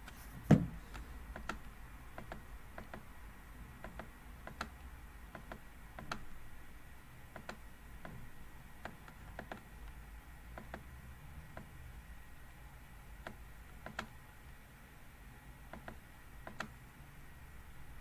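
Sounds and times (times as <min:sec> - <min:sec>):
dull thump: 0:00.4 - 0:00.8
computer mouse clicking: 0:00.9 - 0:03.1, 0:03.8 - 0:06.3, 0:07.3 - 0:08.2, 0:08.8 - 0:10.9, 0:13.2 - 0:14.2, 0:15.7 - 0:16.8.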